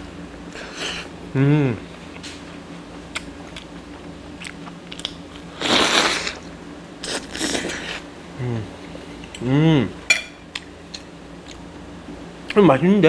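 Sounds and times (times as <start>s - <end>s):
chewing and crunching sandwich: 1.9s - 8.1s.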